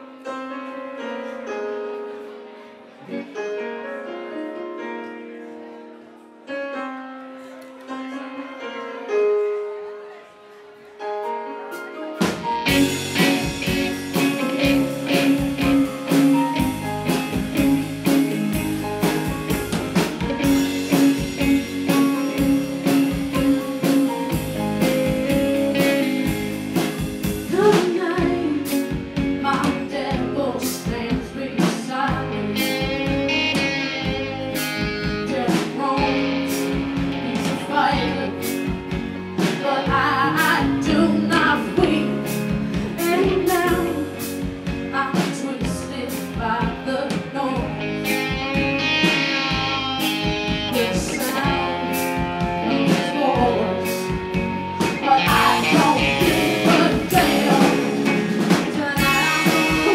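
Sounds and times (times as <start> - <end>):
acoustic and electric guitars: 11.1 - 59.9
drum kit: 11.7 - 59.9
electric bass: 12.6 - 59.9
person singing: 26.8 - 38.8, 39.4 - 44.4, 45.0 - 59.9.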